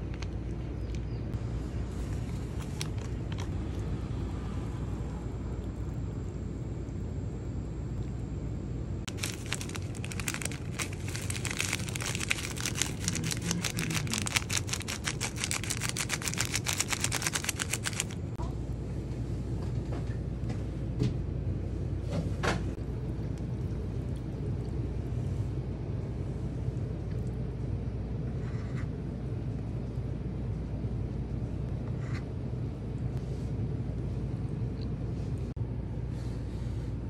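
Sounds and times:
low background rumble: 0:00.0 - 0:37.0
plastic packet crinkling: 0:09.1 - 0:18.4.

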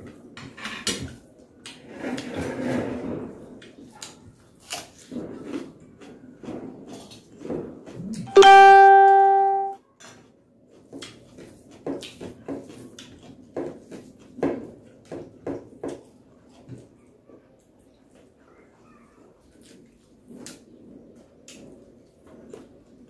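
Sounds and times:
person chewing: 0:04.6 - 0:08.4
loud ringing note: 0:08.3 - 0:09.8
fingers mixing rice on plate: 0:10.0 - 0:18.4.

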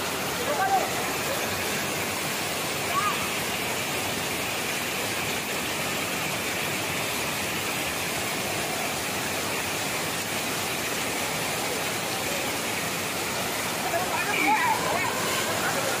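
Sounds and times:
water pouring over spillway: 0:00.0 - 0:16.0.

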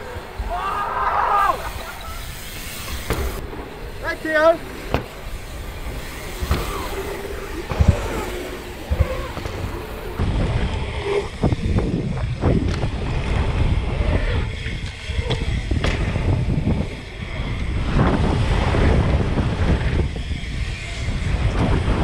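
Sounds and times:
wind rushing over microphone: 0:00.0 - 0:22.0
bike tyres knocking on wooden boards: 0:02.8 - 0:03.4, 0:04.8 - 0:10.4.

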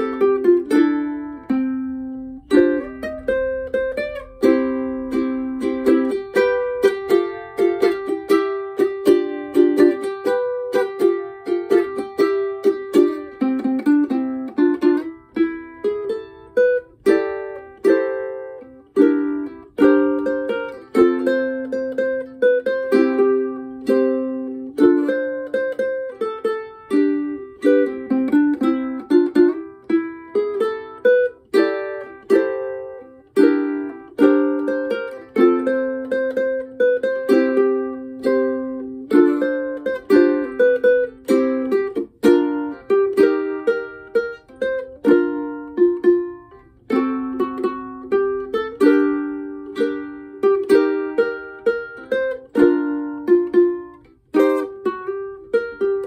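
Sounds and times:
fingerstyle ukulele: 0:00.0 - 0:56.0.

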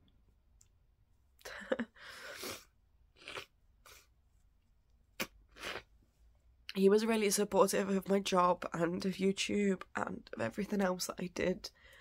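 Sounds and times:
woman sniffling and blowing nose: 0:02.0 - 0:02.8.

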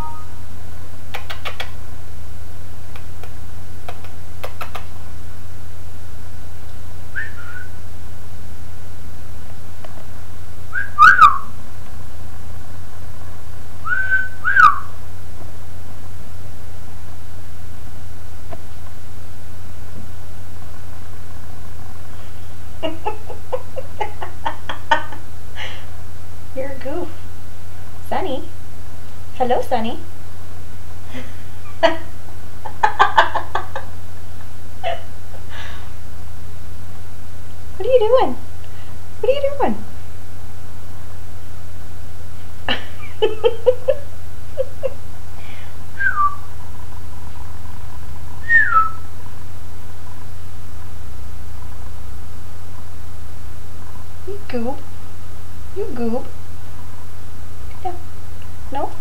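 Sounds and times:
steady low hum: 0:00.0 - 0:59.0
kiss smacks: 0:01.1 - 0:01.8, 0:02.9 - 0:04.9
person whistling short notes: 0:07.2 - 0:07.7, 0:13.9 - 0:14.8, 0:46.0 - 0:46.4, 0:48.4 - 0:49.0
parakeet calls and clicks: 0:11.0 - 0:11.4.

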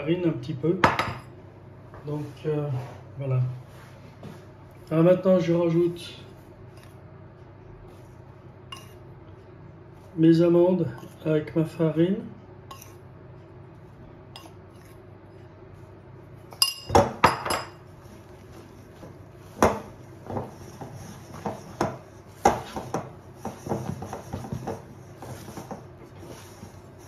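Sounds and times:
spoon clinking against glass bowl: 0:16.5 - 0:17.8.

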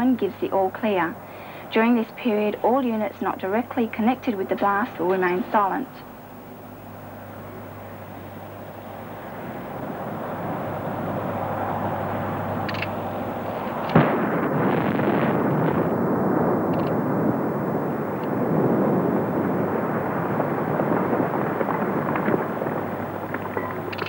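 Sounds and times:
long blast rumble: 0:00.0 - 0:24.0
sharp blast crack: 0:13.7 - 0:19.6.

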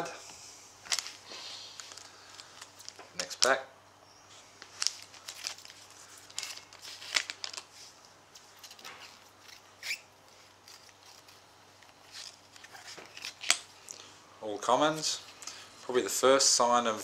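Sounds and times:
card packet crinkling: 0:00.8 - 0:03.6, 0:04.6 - 0:07.8, 0:08.4 - 0:13.7.

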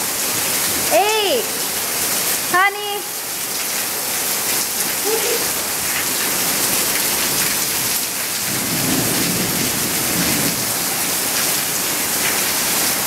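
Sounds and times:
heavy rain pouring: 0:00.0 - 0:13.0
low rumble of thunder: 0:08.4 - 0:10.9.

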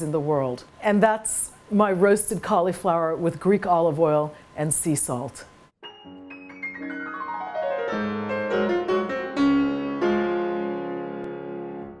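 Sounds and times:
piano chords: 0:05.8 - 0:12.0.

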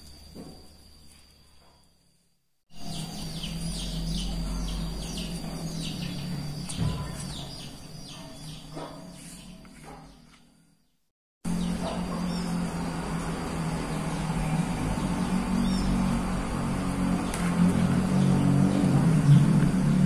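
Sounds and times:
birds chirping: 0:02.7 - 0:20.0
low hum: 0:02.8 - 0:10.4.

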